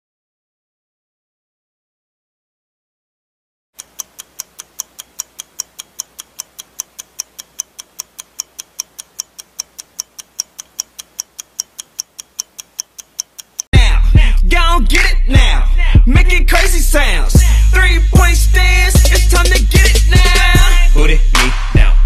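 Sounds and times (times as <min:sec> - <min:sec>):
clock ticking: 0:03.8 - 0:13.8.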